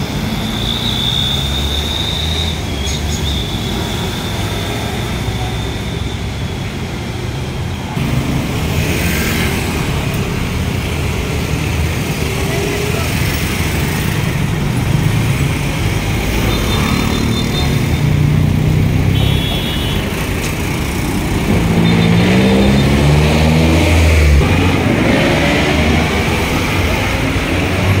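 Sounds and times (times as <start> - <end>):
road traffic passing: 0.0 - 28.0
engine accelerating: 20.8 - 28.0.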